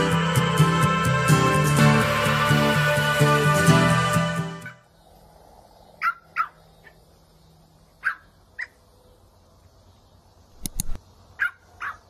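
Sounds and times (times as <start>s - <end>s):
puppy yapping: 6.0s - 7.0s, 8.0s - 8.8s, 11.4s - 12.0s.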